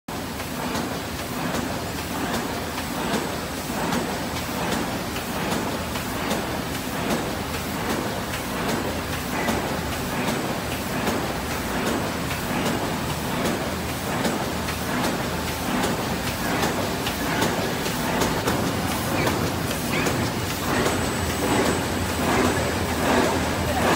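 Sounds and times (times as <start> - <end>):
machine clattering: 0.4 - 23.9
quick mechanical clicks: 7.8 - 23.2.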